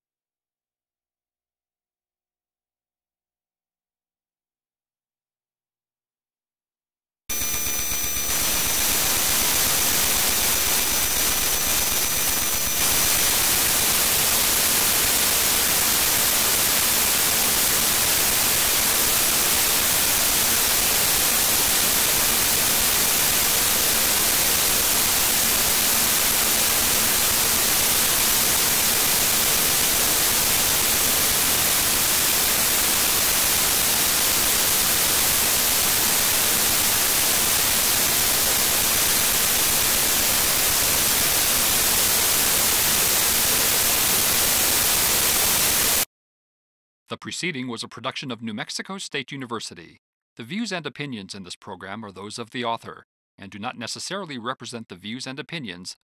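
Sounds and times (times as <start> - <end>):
static hiss: 7.3 - 46.1.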